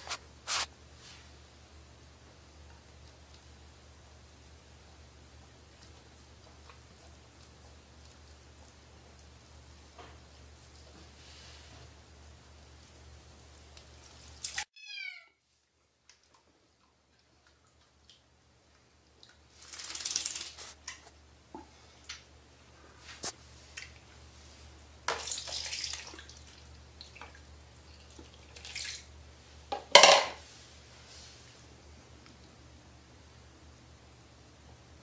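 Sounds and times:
water splashing in a sink: 16.1s - 21.0s, 25.1s - 29.2s.

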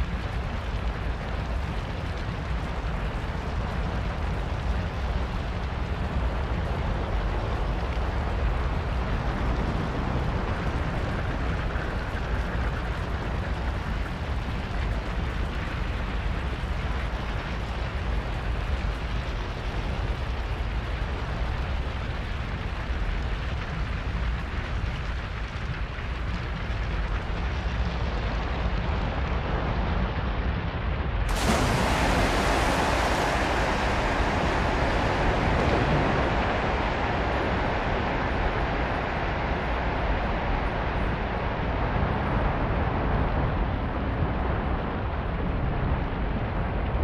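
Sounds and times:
fire roaring: 0.0s - 47.0s.

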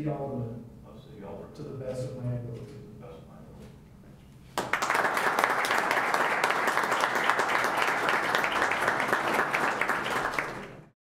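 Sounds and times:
audience applauding: 4.6s - 10.9s.

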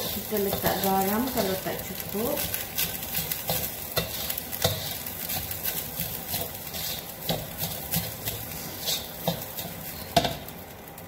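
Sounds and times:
spatula scraping a steel wok: 0.0s - 10.5s
rice sizzling in oil: 0.0s - 11.0s.

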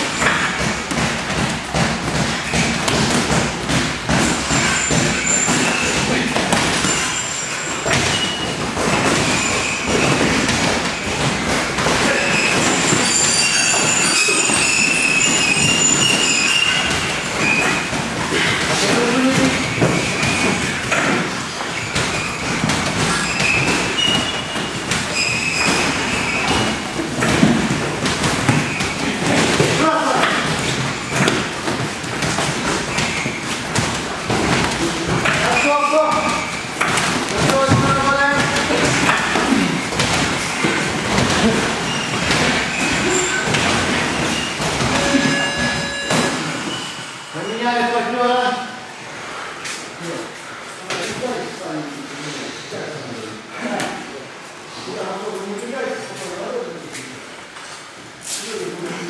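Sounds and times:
boxing gloves thudding: 0.0s - 7.2s, 7.8s - 13.1s, 14.6s - 45.0s
gym noise: 0.0s - 48.4s
short high squeaks: 4.2s - 11.1s, 12.1s - 18.6s, 19.6s - 27.3s, 41.4s - 47.9s.

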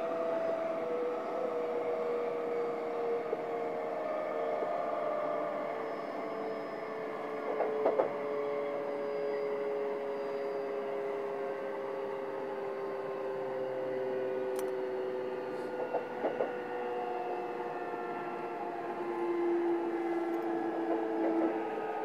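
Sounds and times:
train motor whine: 0.0s - 22.0s.

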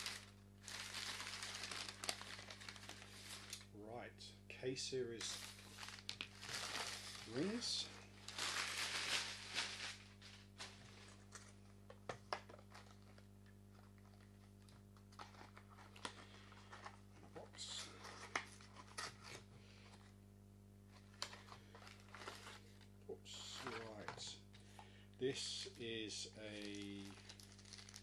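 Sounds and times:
packaging rustles: 0.0s - 3.7s, 5.2s - 11.6s, 12.3s - 19.4s, 21.0s - 22.9s, 26.4s - 28.0s
low electrical hum: 0.0s - 28.0s.

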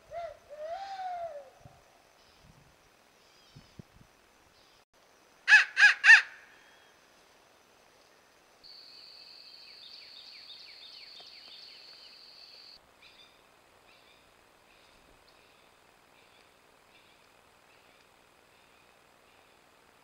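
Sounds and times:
crow cawing: 5.5s - 6.4s.

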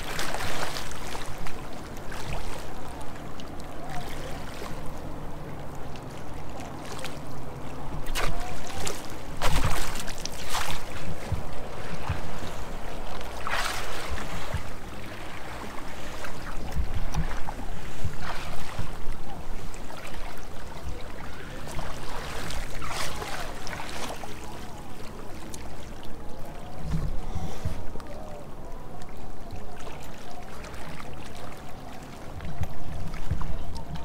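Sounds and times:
water lapping against kayak: 0.0s - 34.0s.

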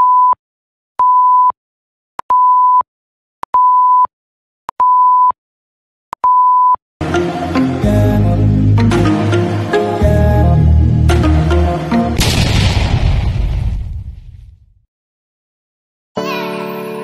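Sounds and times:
timer beeps: 6.2s - 6.8s
music: 7.0s - 12.2s, 16.2s - 17.0s.

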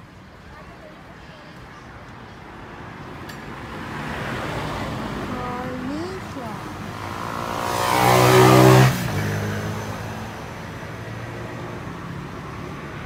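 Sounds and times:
vehicle engine revving: 4.5s - 11.0s.

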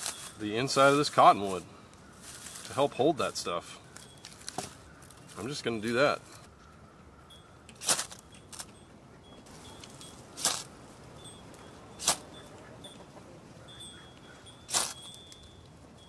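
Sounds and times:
knife scraping fire steel: 7.8s - 8.7s, 10.4s - 10.7s, 12.0s - 12.3s, 14.7s - 15.1s.

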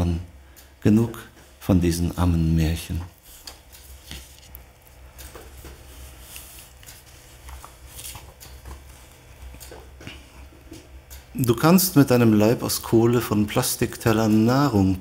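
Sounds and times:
paper rustling and shuffling: 2.8s - 10.2s.

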